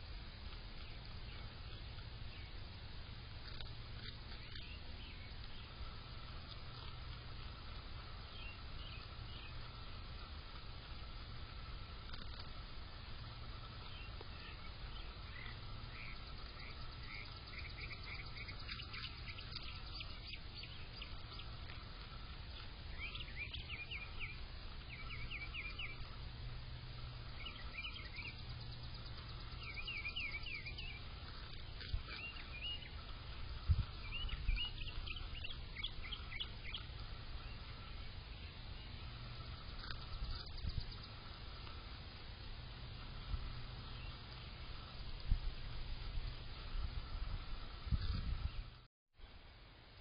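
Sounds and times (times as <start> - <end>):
songbird chirping: 0.0 - 48.8
steady low hum: 0.0 - 50.0.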